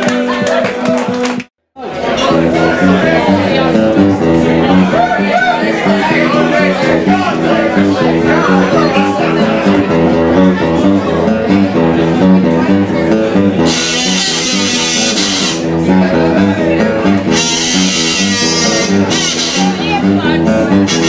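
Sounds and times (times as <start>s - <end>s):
strummed guitar: 0.0s - 21.0s
bass notes: 1.1s - 21.0s
alto saxophone: 13.6s - 15.8s, 17.3s - 21.0s.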